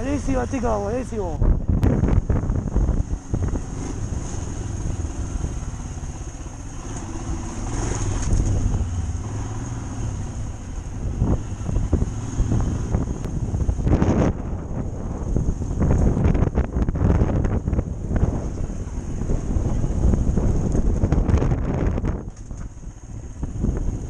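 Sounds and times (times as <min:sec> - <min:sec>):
motorcycle engine at low revs: 0:00.0 - 0:24.0.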